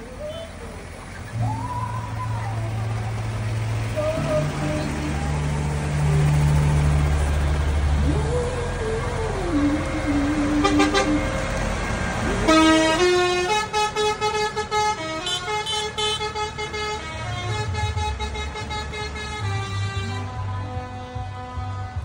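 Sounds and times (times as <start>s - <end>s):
low engine rumble: 0.0s - 22.0s
vehicle horn tooting: 10.6s - 11.4s, 12.4s - 22.0s.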